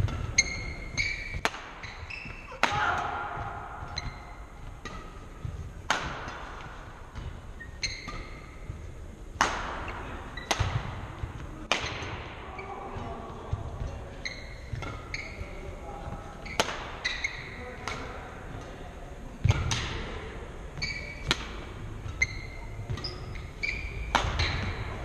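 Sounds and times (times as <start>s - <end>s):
shoes squeaking on hardwood court: 0.0s - 2.6s, 3.8s - 5.7s, 6.7s - 8.9s, 10.3s - 11.3s, 12.5s - 17.8s, 20.8s - 25.0s
rackets striking shuttlecock: 0.0s - 12.2s, 16.4s - 18.8s, 19.4s - 20.1s, 20.8s - 25.0s.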